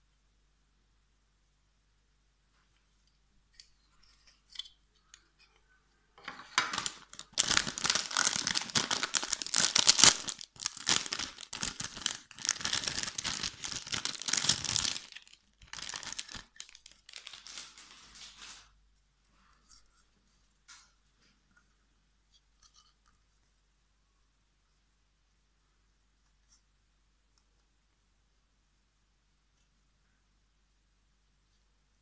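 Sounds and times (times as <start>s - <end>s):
plastic packaging crinkling: 6.6s - 18.7s.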